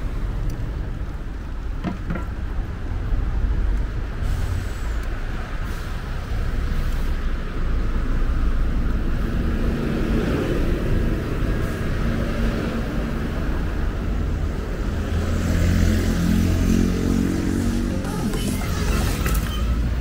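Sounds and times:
road traffic passing: 0.0s - 20.0s
engine passing by: 8.5s - 20.0s.

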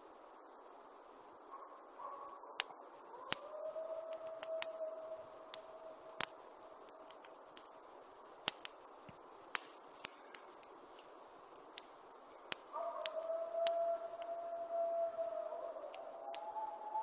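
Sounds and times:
wood fire crackling and popping: 2.2s - 17.0s
wolves howling: 3.1s - 7.3s, 12.7s - 17.0s.

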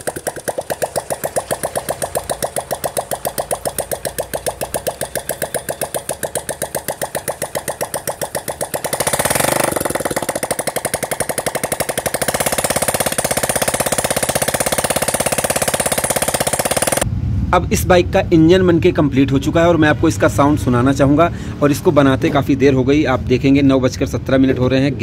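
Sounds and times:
small engine popping exhaust: 0.0s - 17.1s
throttle blip: 0.0s - 17.1s.

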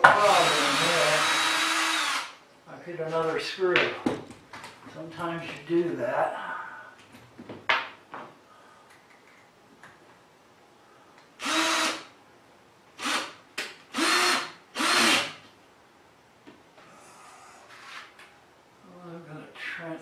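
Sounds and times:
cordless drill whine: 0.1s - 2.4s, 11.4s - 12.1s, 13.0s - 13.3s, 13.9s - 15.4s.

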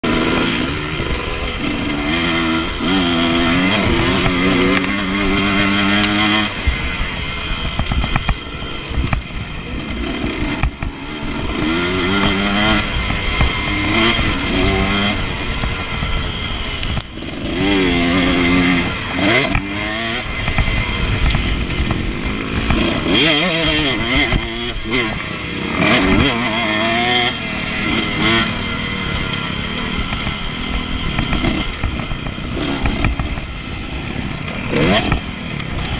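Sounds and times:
motocross bike revving: 0.0s - 35.9s
wind over microphone: 0.9s - 26.4s.

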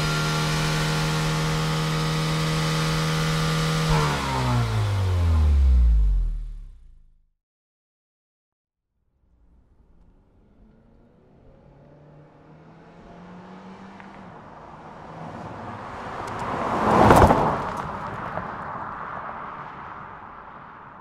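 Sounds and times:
car driving past: 9.2s - 21.0s.

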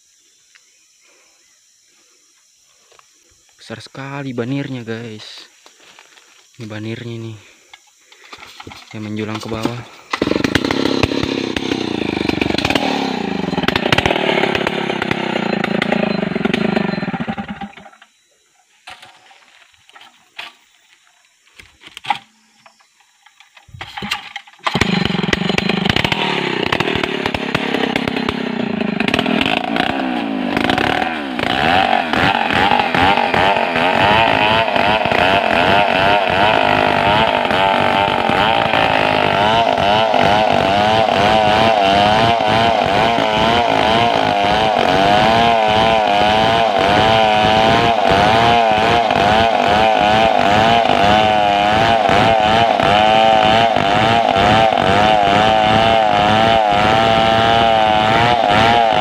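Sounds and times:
chainsaw revving and cutting: 9.2s - 18.0s, 24.6s - 59.0s.

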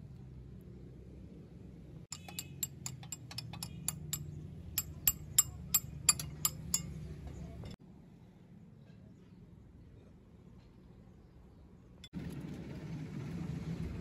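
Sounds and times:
spanner clicking against bolt: 2.1s - 7.0s.

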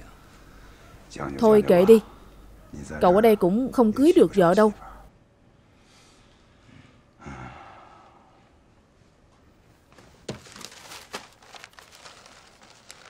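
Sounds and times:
paper rustling: 9.9s - 13.0s.

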